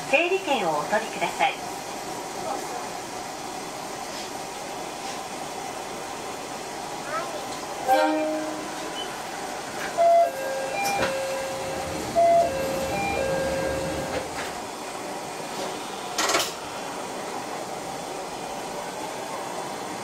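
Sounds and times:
idling train hum: 0.0s - 20.0s
electronic chime: 10.0s - 14.1s.

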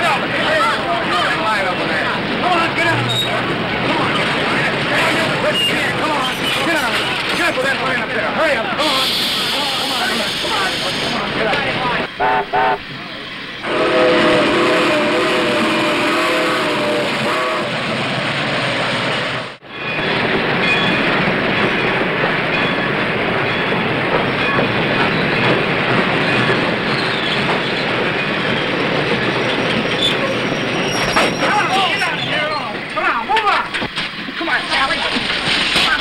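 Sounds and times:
moving steam train rumble and clatter: 0.0s - 36.0s
steam locomotive whistle chord: 12.2s - 12.8s, 13.6s - 17.7s.

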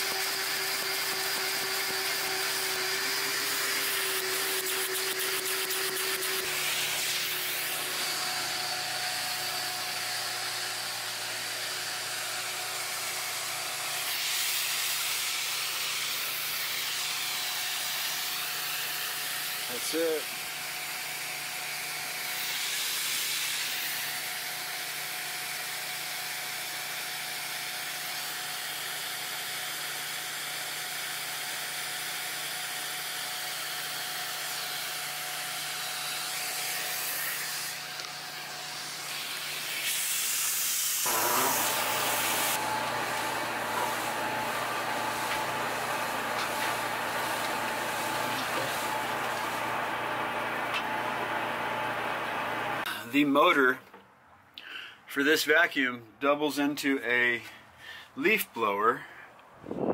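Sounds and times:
suction hissing through hose: 0.0s - 20.4s, 22.1s - 25.1s, 33.5s - 51.2s
shop vacuum running: 0.0s - 53.0s.

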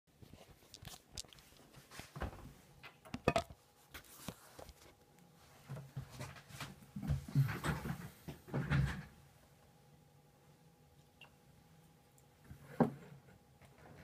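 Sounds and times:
person moving about: 0.1s - 8.4s.

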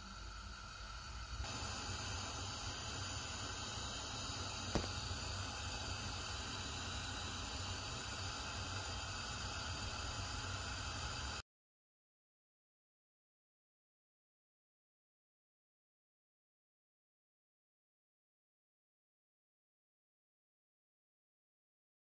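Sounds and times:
gas burner hissing: 0.0s - 11.4s.

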